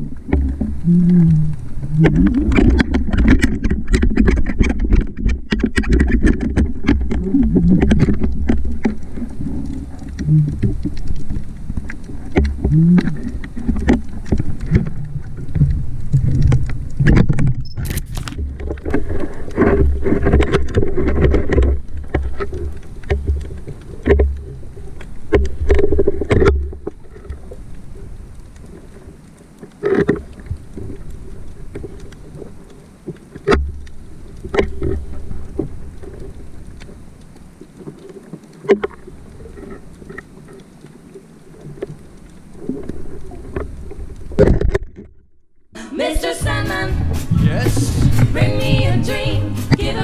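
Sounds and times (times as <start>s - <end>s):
sharp clicks and crackles: 0.0s - 45.7s
underwater rumble of moving water: 0.0s - 45.7s, 46.5s - 50.0s.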